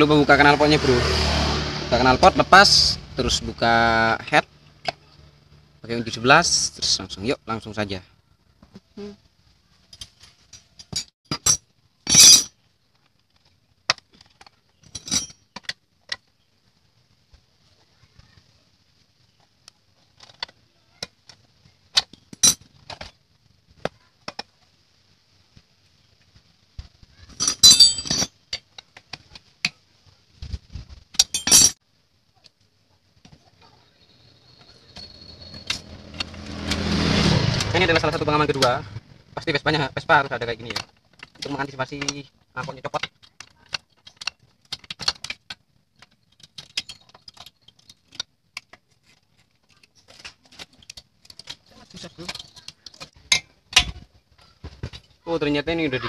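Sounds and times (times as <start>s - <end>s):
metal tools clinking: 9.9s - 12.6s, 14.8s - 15.7s, 22.0s - 23.1s, 27.3s - 28.7s, 31.1s - 31.8s, 34.5s - 38.8s, 40.5s - 48.3s, 49.0s - 54.0s
metal clattering: 10.0s - 12.5s, 27.4s - 28.6s, 31.2s - 31.8s.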